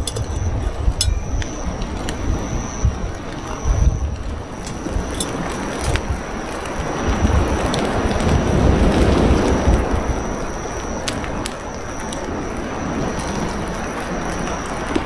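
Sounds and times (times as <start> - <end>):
thin steady high tone: 0.0 - 15.0
wind buffeting microphone: 0.0 - 15.0.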